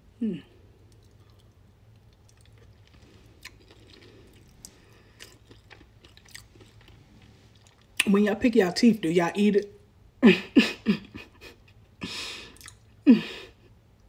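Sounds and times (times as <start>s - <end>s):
faint chewing: 0.7s - 8.1s, 12.4s - 12.9s.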